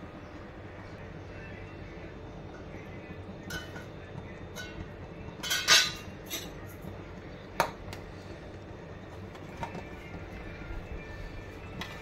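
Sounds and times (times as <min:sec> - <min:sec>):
spoon clinking on pot: 0:03.4 - 0:03.9, 0:04.5 - 0:06.9
metal pot lid clattering: 0:03.5 - 0:03.9, 0:04.5 - 0:06.6.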